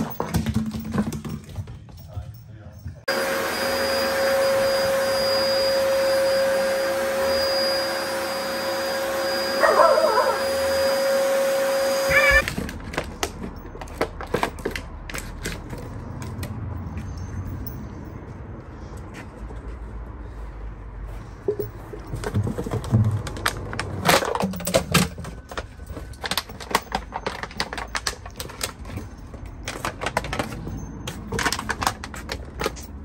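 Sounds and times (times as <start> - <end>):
vacuum cleaner whine: 3.1 - 12.6.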